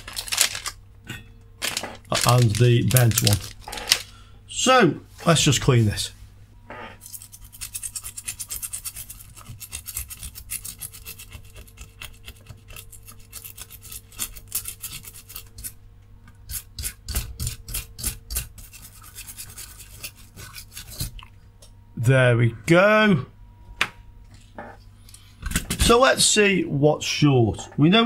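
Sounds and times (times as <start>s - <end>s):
brush scrubbing circuit board: 7.0s - 15.8s, 16.5s - 21.2s.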